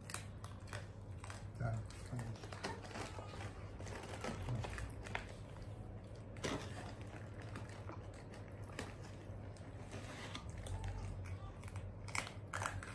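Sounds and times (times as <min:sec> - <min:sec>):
low steady hum: 0:00.0 - 0:12.9.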